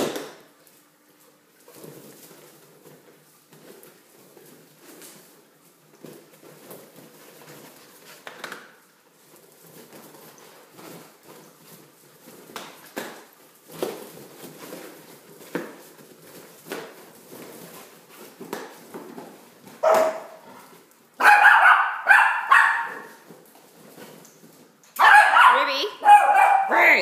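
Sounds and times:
taps and scuffles on tiled floor: 0.0 - 25.2
dog barking: 19.8 - 20.4, 21.2 - 23.2, 25.0 - 27.0.

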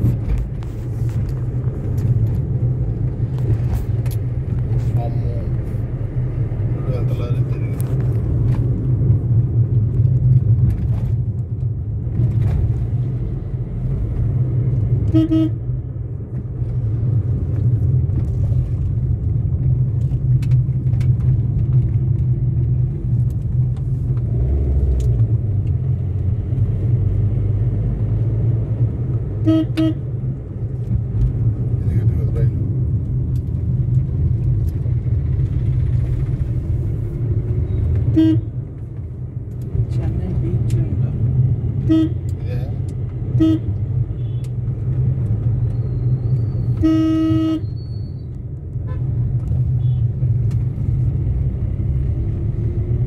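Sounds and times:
car driving rumble: 0.0 - 53.0
vehicle horn double toot: 15.1 - 15.6, 29.4 - 30.0, 38.1 - 38.5, 41.8 - 42.2, 43.4 - 44.5, 46.7 - 48.1.

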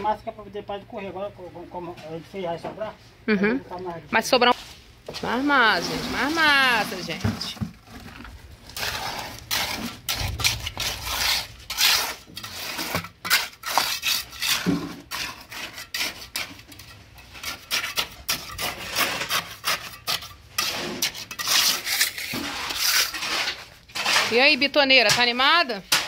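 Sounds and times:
trowel scraping wet concrete: 5.2 - 26.0.

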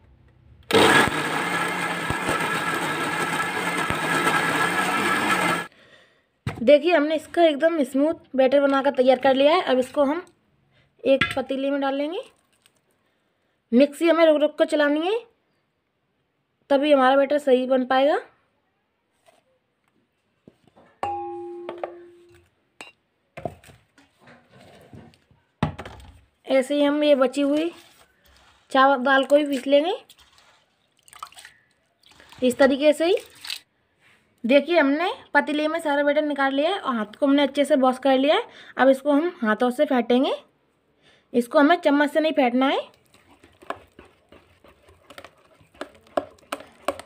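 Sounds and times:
mixer grinder whirring: 0.7 - 5.7, 43.0 - 47.0.

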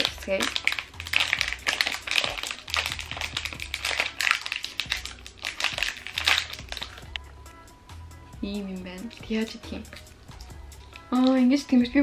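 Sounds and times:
plastic wrapper crinkling: 0.0 - 7.2.

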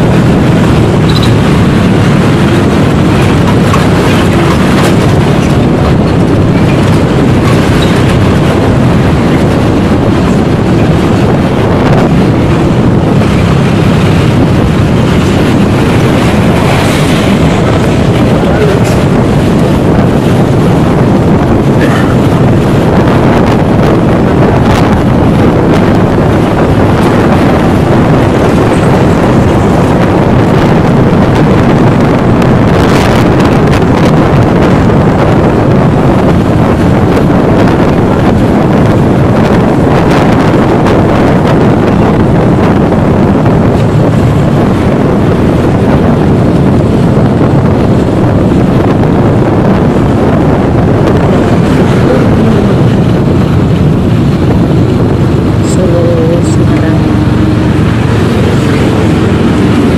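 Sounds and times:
car engine and road noise: 0.0 - 59.9
wind rush on microphone: 0.0 - 59.9.

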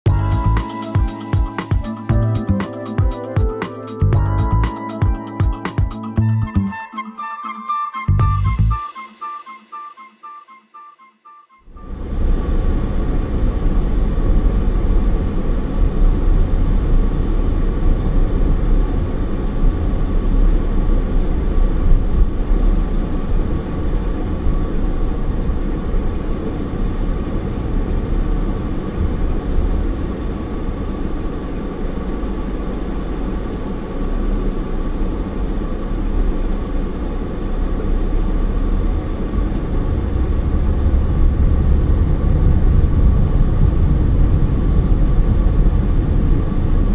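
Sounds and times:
car engine and tyres rumbling: 11.7 - 46.9.

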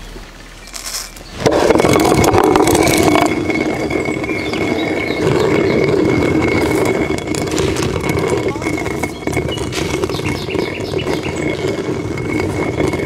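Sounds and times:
stone mill grinding corn: 0.7 - 13.0.

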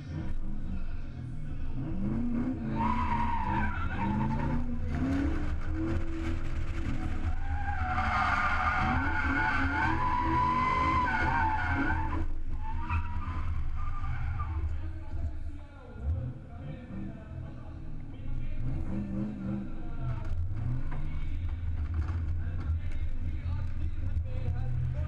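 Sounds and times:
car engine revving: 0.0 - 25.0
tyres squealing: 2.7 - 5.4, 7.2 - 14.6.

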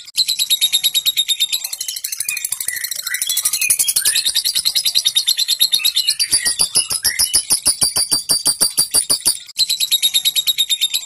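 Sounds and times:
lovebird chattering trill: 3.4 - 9.5.

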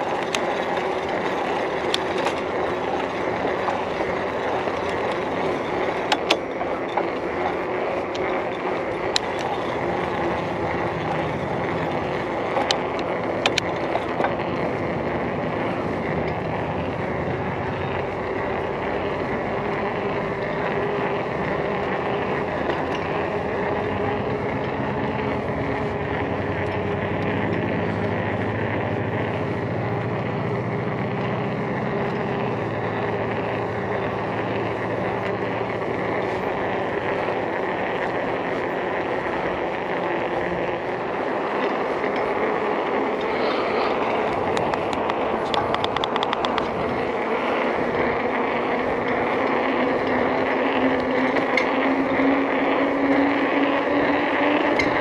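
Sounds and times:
bike tyres rolling on pavement: 0.0 - 55.0
quick run of ticks: 0.0 - 55.0
wind rush on microphone: 8.1 - 55.0.

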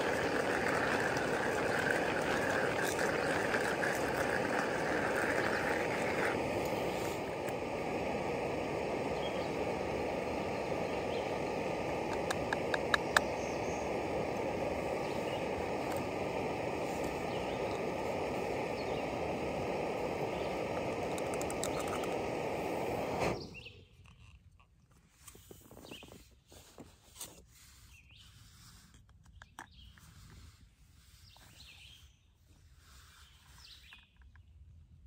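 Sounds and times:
gas stove burning: 0.0 - 23.8.

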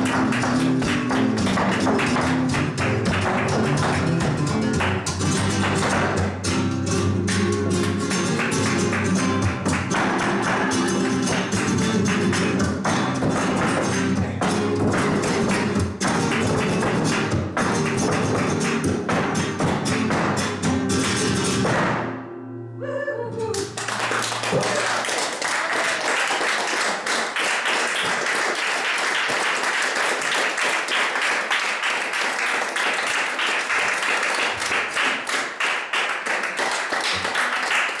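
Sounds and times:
audience applause: 0.0 - 4.1, 8.3 - 12.5, 23.6 - 38.0
flamenco guitar: 0.0 - 28.2.

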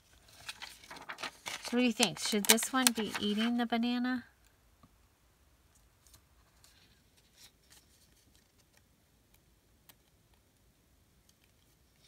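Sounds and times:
paper rustling: 0.0 - 3.6.

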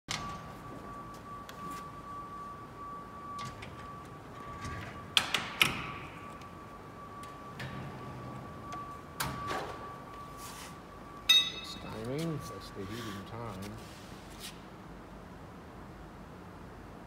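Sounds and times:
steady high tone: 9.8 - 13.6
sharp metal knocks: 11.3 - 11.8.

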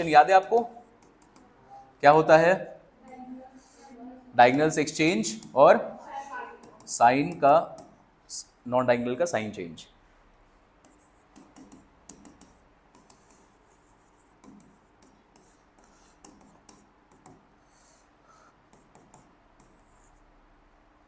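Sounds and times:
pen scratching while writing: 10.8 - 17.4, 18.7 - 20.3.

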